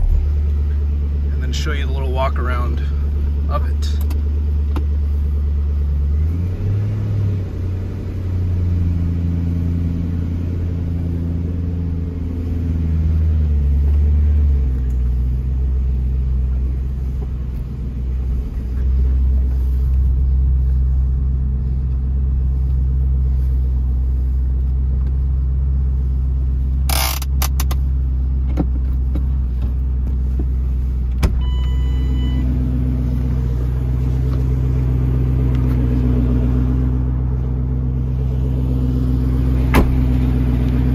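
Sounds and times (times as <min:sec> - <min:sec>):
car engine idling: 0:00.0 - 0:40.9
short electronic beep: 0:31.4 - 0:32.5.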